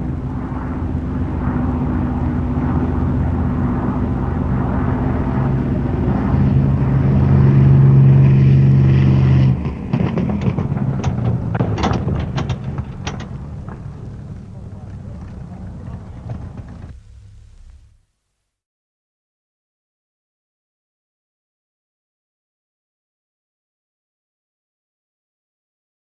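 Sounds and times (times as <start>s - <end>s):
piston aircraft engine droning: 0.0s - 18.0s
sharp knocks and clanks: 9.6s - 17.0s.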